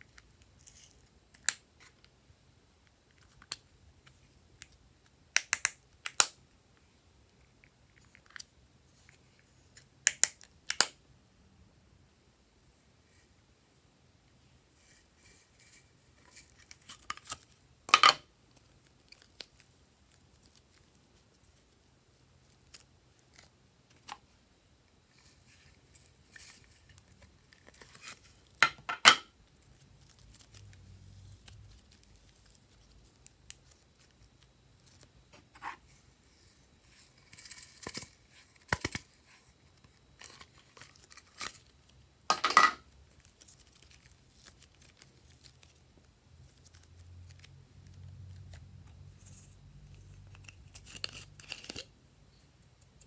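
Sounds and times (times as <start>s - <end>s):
slime crackling and popping: 43.0s - 48.6s.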